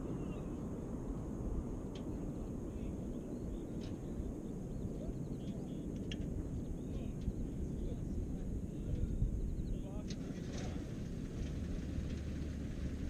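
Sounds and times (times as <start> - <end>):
small birds chirping: 0.0 - 0.7, 2.0 - 10.9
low outdoor rumble: 0.0 - 13.0.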